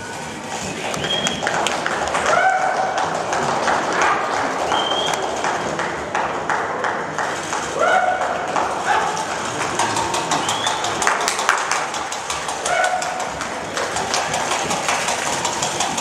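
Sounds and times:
pony hoofbeats trotting: 0:00.2 - 0:16.0
handlers calling: 0:08.8 - 0:16.0.

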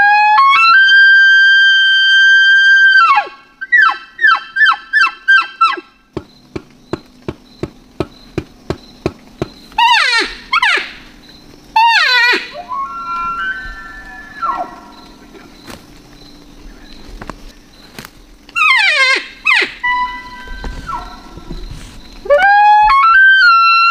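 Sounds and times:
elk bugling: 0:09.0 - 0:15.6, 0:18.5 - 0:23.9.

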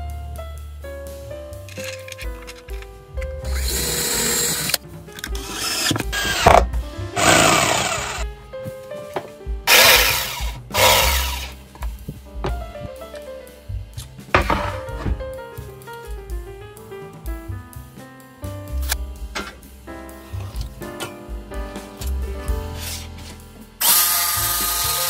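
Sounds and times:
background music: 0:00.0 - 0:25.0
power tool running: 0:03.5 - 0:04.7, 0:05.5 - 0:06.6, 0:07.2 - 0:08.2, 0:09.7 - 0:11.5, 0:23.8 - 0:25.0.

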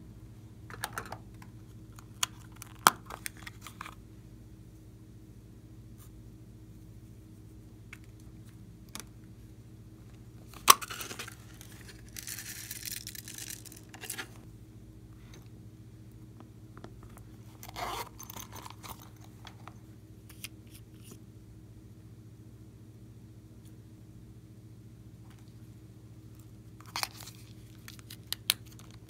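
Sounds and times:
steady low hum: 0:00.0 - 0:29.0
sprinkles rattling out: 0:11.0 - 0:14.2.

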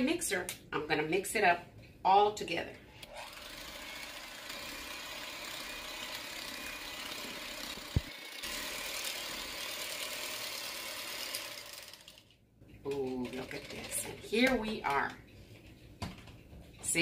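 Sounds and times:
electric hand mixer whirring: 0:03.0 - 0:12.3.

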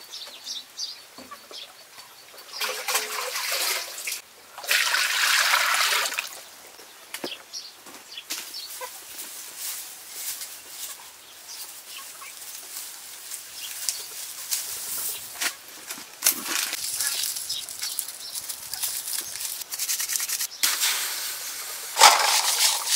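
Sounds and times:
water poured into a wok: 0:02.6 - 0:06.3, 0:20.7 - 0:22.9.

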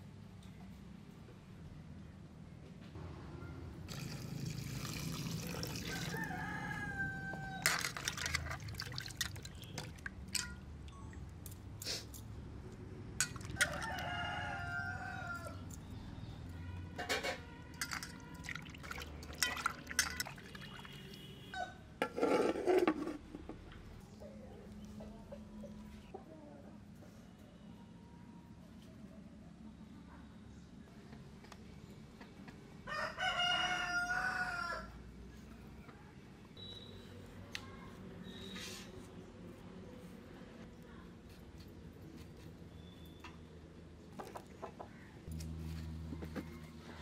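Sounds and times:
water pouring into a metal bowl: 0:03.9 - 0:06.2, 0:07.7 - 0:10.5, 0:17.8 - 0:21.1
rooster crowing: 0:05.8 - 0:07.8, 0:13.5 - 0:15.6, 0:32.8 - 0:35.0
wet splashes and clinks: 0:07.6 - 0:11.0, 0:13.2 - 0:14.0, 0:17.7 - 0:21.2.

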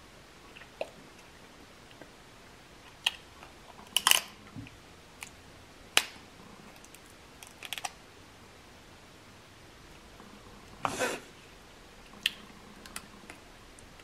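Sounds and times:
crab shells cracking: 0:03.9 - 0:04.3, 0:06.8 - 0:08.0.

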